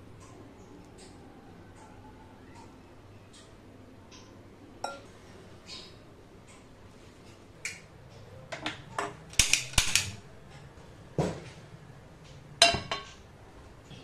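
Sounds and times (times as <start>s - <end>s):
stove igniter clicks: 9.3s - 10.2s
iron pan clanking on metal: 12.6s - 13.2s.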